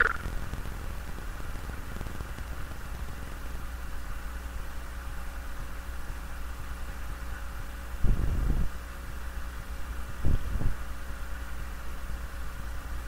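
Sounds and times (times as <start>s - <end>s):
even hiss: 0.0s - 2.8s
low hum: 0.0s - 6.1s.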